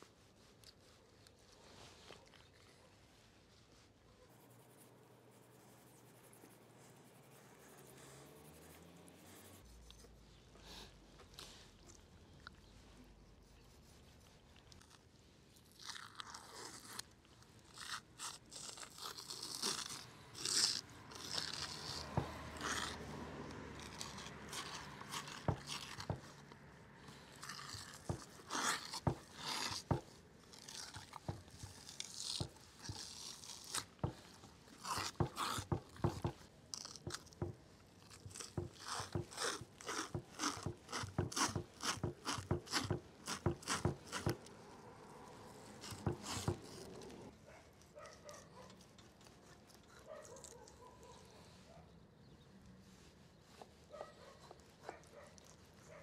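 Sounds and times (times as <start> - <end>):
wet sticky peeling of liver: 13.8 - 36.1.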